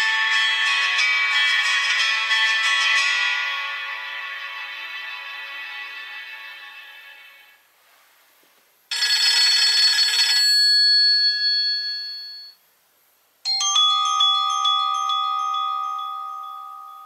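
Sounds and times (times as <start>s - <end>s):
phone ringtone chime: 0.0s - 6.6s, 8.9s - 12.6s, 13.5s - 17.0s
ringtone high notes over chord: 0.0s - 7.6s, 13.4s - 17.0s.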